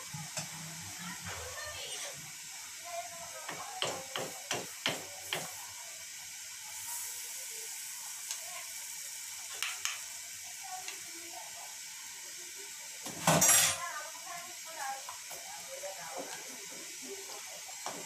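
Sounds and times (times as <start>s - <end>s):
lentils simmering and foaming: 0.0s - 18.0s
spatula and spoon knocking pot: 3.4s - 5.6s.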